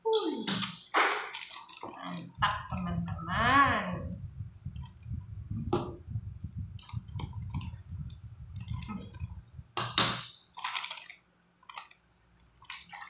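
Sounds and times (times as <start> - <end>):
plastic packaging crinkling: 0.4 - 3.1, 10.2 - 13.0
loud plastic crackle: 0.5 - 2.8, 8.6 - 13.0
low rumble of handling: 1.7 - 10.0.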